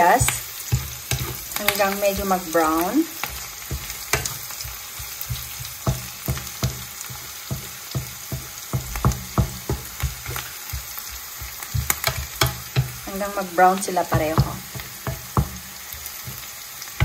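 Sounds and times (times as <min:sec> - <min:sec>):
onions sizzling in oil: 0:00.0 - 0:17.0
spatula scraping a pan: 0:00.0 - 0:17.0.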